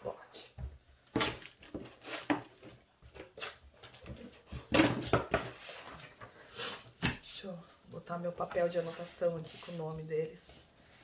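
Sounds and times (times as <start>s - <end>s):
paper and plastic packaging rustling: 1.0s - 6.4s.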